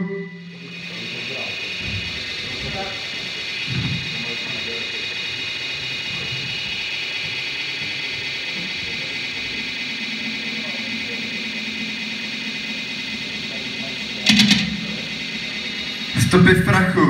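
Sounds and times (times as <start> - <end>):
sustained low synthesizer tone: 0.0 - 4.4, 9.7 - 17.0
synthesizer noisy high wash: 0.0 - 17.0.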